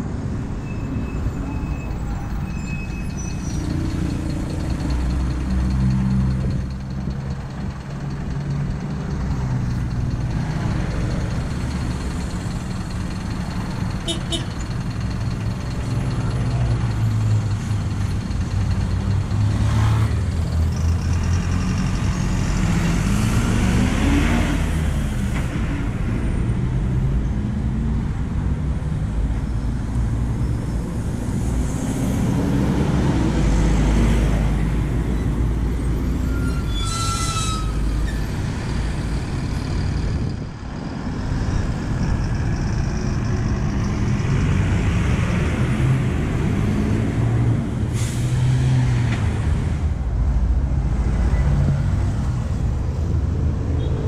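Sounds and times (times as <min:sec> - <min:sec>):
bus engines revving: 0:00.0 - 0:54.0
traffic drone: 0:00.0 - 0:54.0
brake squeal: 0:00.4 - 0:06.6, 0:35.0 - 0:40.3.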